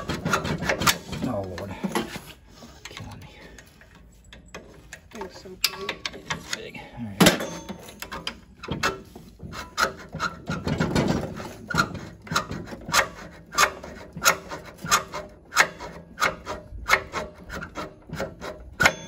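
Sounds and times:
file rasping on metal: 11.8s - 19.0s.

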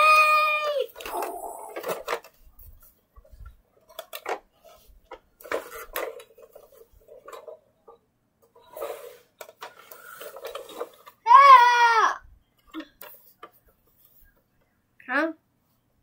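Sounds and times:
plastic toys clicking and knocking: 0.0s - 2.4s, 3.8s - 8.6s, 9.4s - 11.5s.

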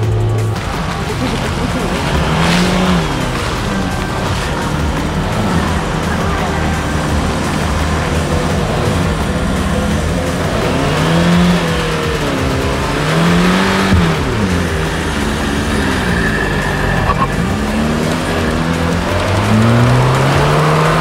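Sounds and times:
car engine revving: 0.0s - 21.0s.

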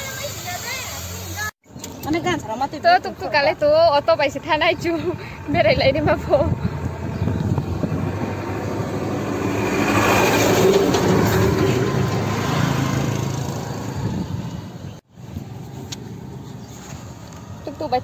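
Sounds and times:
car engine and road noise: 0.0s - 18.0s
rushing air: 6.4s - 15.6s.

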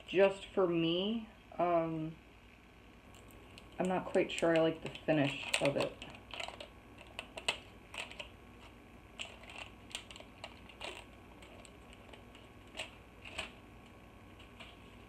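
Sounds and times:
plastic wrapping crinkling: 3.1s - 13.6s.

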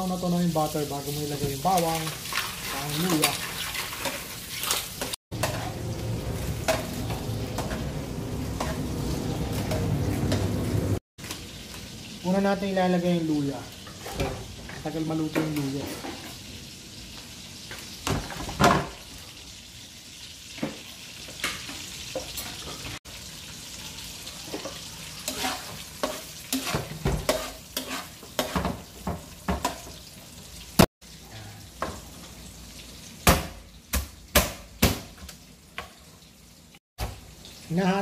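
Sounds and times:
ginger sizzling in butter: 0.0s - 34.3s
metal spatula scraping wok: 2.6s - 10.6s, 25.2s - 28.8s.

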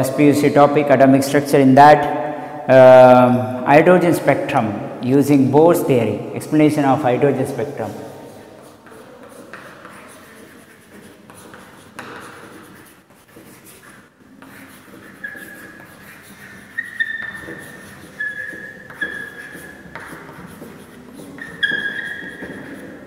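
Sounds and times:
chalk scratching on chalkboard: 6.4s - 23.0s
chalk squeaks: 7.7s - 23.0s.

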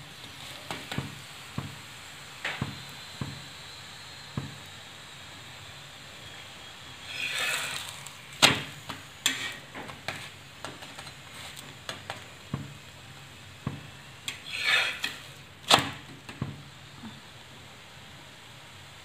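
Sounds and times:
faint sizzle: 0.0s - 19.0s
spatula tapping on griddle: 0.7s - 1.8s, 4.4s - 4.6s, 8.4s - 11.1s, 11.8s - 12.8s.

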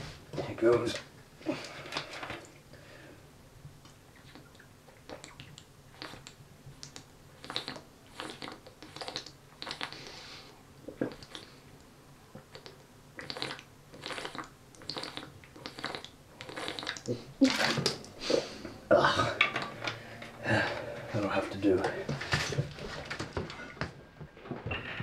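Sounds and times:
liquid glugging in a bottle: 4.1s - 10.1s, 12.4s - 18.0s
man gulping from a bottle: 4.2s - 6.4s, 7.4s - 10.1s, 10.8s - 11.6s, 12.3s - 21.1s.

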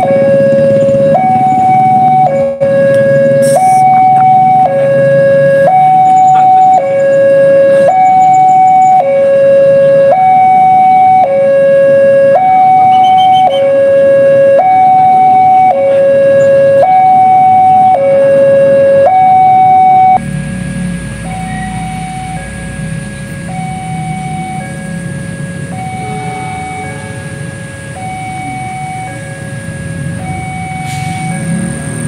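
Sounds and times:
level crossing alarm: 0.0s - 32.0s
low engine rumble: 0.0s - 32.0s.

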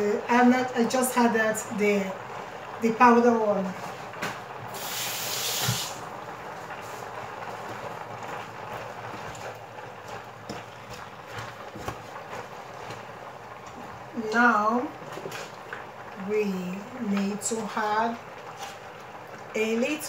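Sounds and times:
steaming pot hissing: 4.6s - 7.4s
wooden spoon stirring in pot: 6.4s - 20.0s.

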